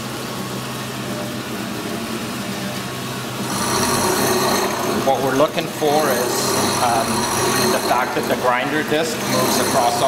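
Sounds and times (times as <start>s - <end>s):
grinder disc cutting concrete: 3.4s - 10.0s
grinder motor humming: 3.4s - 10.0s.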